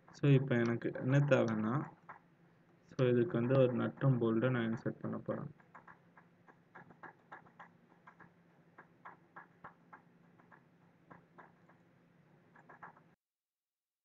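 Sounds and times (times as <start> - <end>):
computer mouse clicking: 3.0 - 11.8, 12.5 - 13.1.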